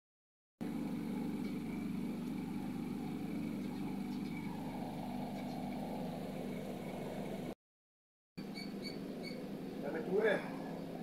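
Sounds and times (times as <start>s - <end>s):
motor humming: 0.6s - 7.6s.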